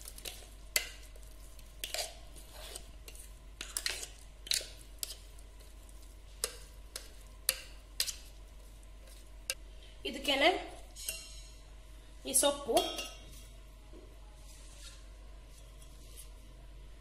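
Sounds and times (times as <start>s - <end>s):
spoon scraping batter from jar: 1.5s - 5.3s
spoon clinking on steel: 11.0s - 11.6s.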